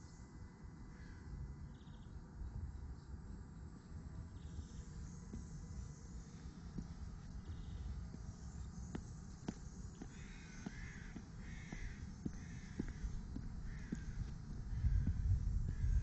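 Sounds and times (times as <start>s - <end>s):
low microphone rumble: 4.0s - 16.0s
footsteps on pavement: 4.5s - 16.0s
crow cawing: 10.0s - 16.0s.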